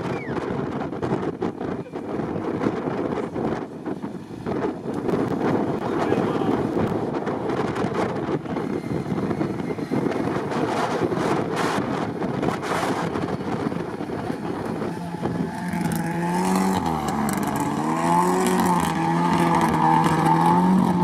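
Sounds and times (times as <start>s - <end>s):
wind noise on microphone: 0.0s - 21.0s
car engine revving: 7.6s - 21.0s.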